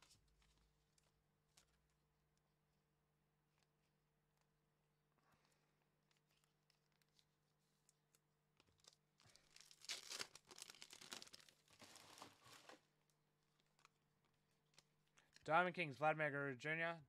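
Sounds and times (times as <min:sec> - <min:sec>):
wrapper tearing and crinkling: 0:08.7 - 0:12.8.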